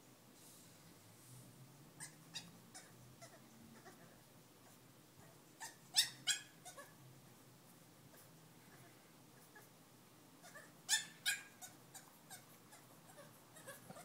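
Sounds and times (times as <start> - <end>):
puppy whining and yelping: 2.0 - 7.0, 10.4 - 14.0.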